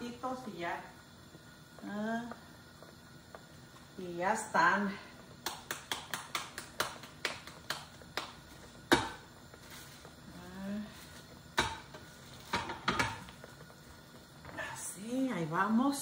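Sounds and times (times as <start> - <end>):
tortilla press knocking: 5.4 - 9.3
hands patting dough: 5.4 - 10.2.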